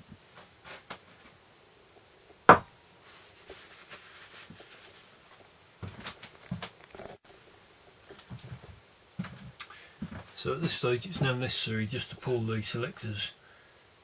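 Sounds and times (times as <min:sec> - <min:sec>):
parts rustling: 0:03.0 - 0:07.2.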